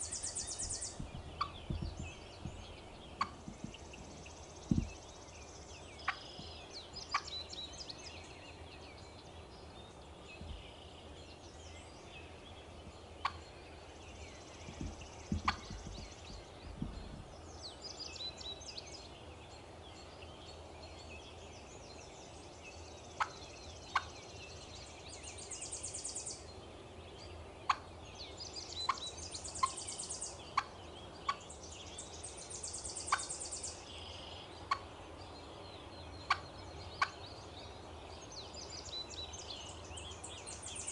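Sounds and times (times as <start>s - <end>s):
turkey clucking: 1.2s - 3.8s.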